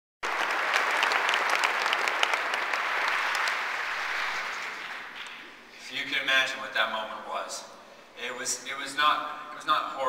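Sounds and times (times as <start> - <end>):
large audience applauding: 0.2 - 5.6.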